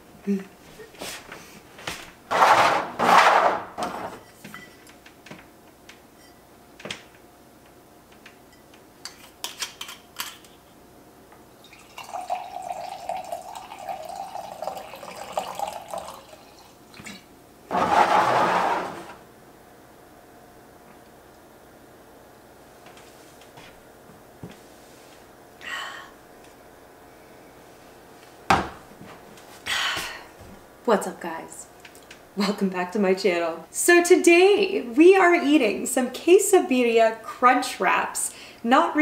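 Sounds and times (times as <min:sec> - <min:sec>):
wine pouring into glass: 0:11.6 - 0:17.2.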